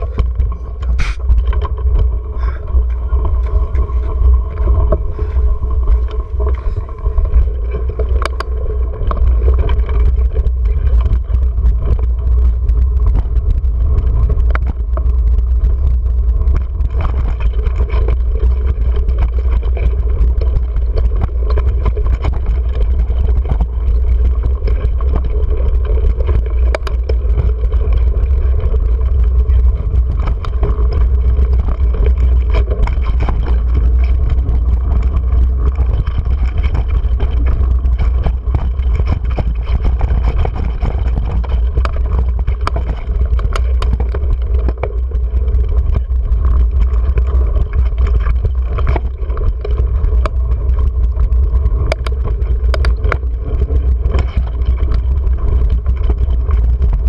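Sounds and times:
bike clicking and rattling: 0.0s - 57.0s
wind rumble: 0.0s - 57.0s.

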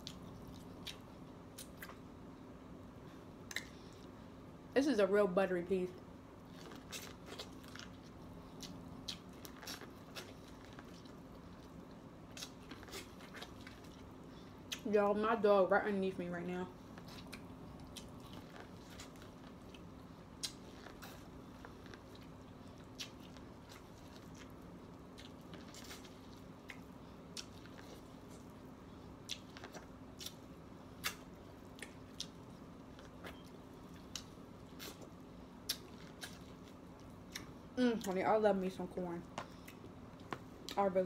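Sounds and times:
chewing corn on the cob: 0.0s - 2.1s, 6.4s - 14.9s, 16.8s - 38.2s.

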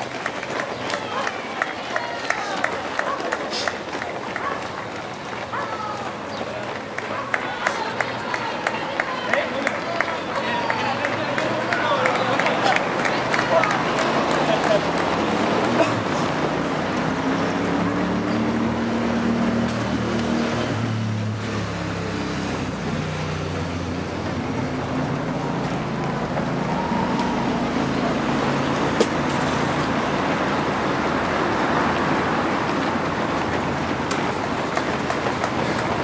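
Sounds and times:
runners footsteps on asphalt: 0.0s - 20.8s, 21.5s - 36.0s.

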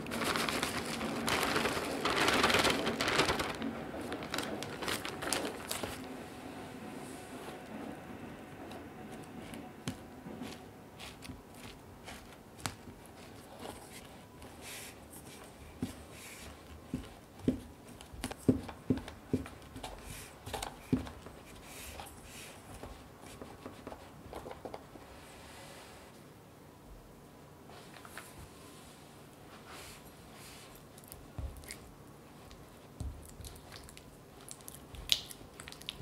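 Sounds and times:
spatula scraping biscuit crumbs: 9.9s - 18.6s.

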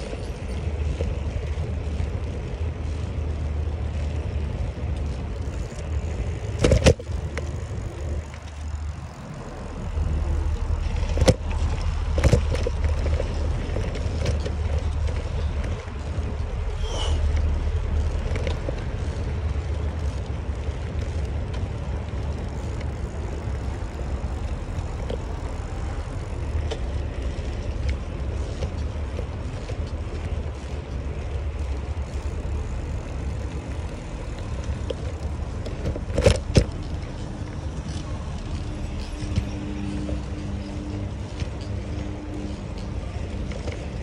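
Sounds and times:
bicycle tyres rolling on road: 0.0s - 44.0s
wind on microphone: 0.0s - 44.0s.

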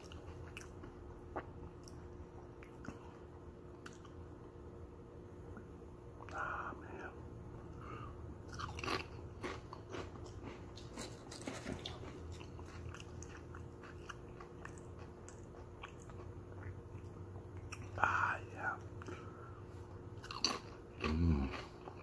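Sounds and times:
potato chips crunching: 8.5s - 18.0s, 20.2s - 22.0s.

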